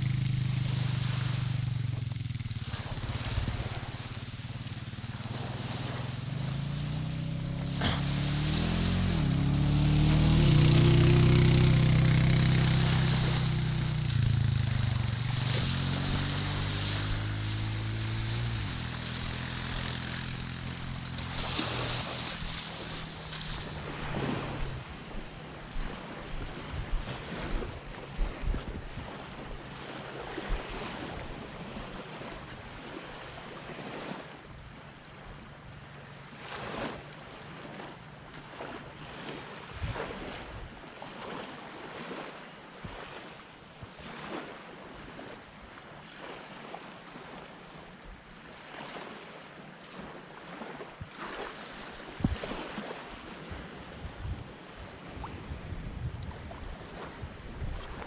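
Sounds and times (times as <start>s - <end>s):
small waves lapping on sand: 0.0s - 58.0s
wind buffeting microphone: 7.3s - 31.6s, 51.8s - 58.0s.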